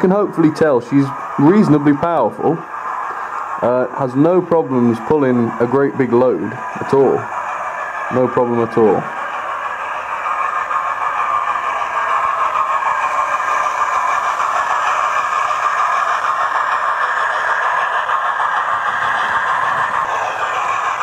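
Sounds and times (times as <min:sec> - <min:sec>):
model train running on track: 0:00.0 - 0:21.0
steam locomotive sounds from speaker: 0:00.0 - 0:21.0.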